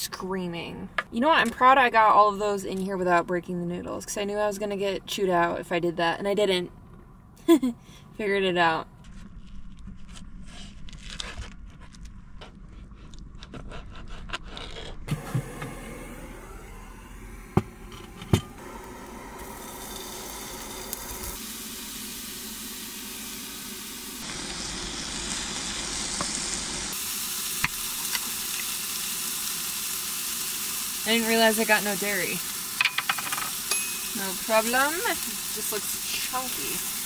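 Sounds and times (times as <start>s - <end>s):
chicken sizzling in a pan: 18.5s - 37.0s.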